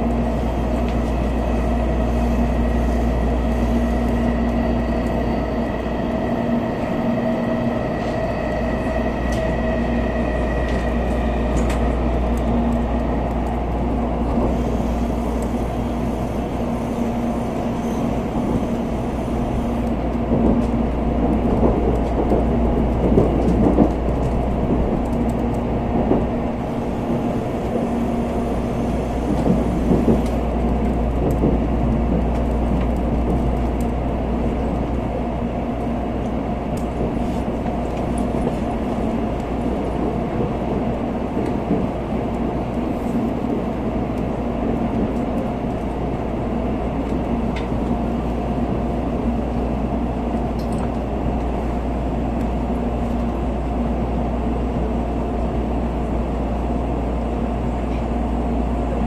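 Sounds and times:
constant train hum: 0.0s - 59.0s
train wheels rumbling: 0.0s - 59.0s
clatter over rail joints: 20.3s - 26.4s.

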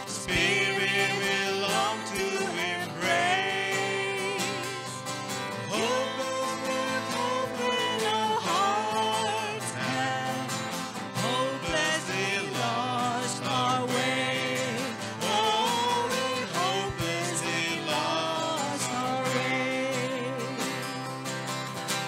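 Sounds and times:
violin: 0.0s - 14.4s
man and woman singing: 0.0s - 21.1s
acoustic guitar: 0.0s - 22.0s.

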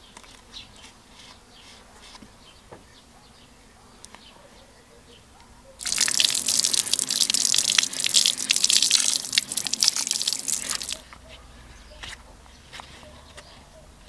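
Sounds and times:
tap water splashing on metal: 5.8s - 11.0s.

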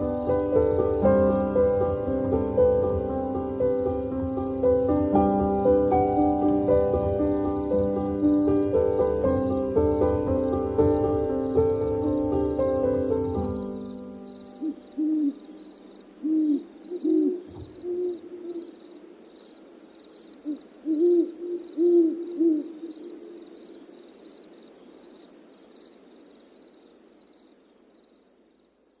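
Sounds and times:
owl hooting: 14.4s - 19.2s, 20.4s - 23.8s.

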